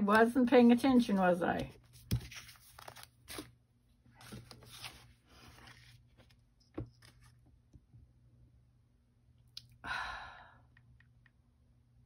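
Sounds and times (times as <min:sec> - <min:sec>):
paper rustling and scraping: 0:01.0 - 0:03.5, 0:04.1 - 0:07.4.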